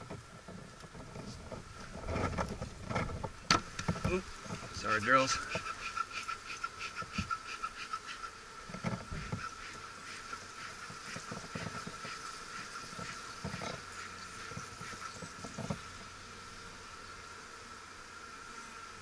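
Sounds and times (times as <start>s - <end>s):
wooden hive boxes knocking: 0.0s - 4.8s, 8.7s - 16.0s
honeybees buzzing: 0.0s - 19.0s.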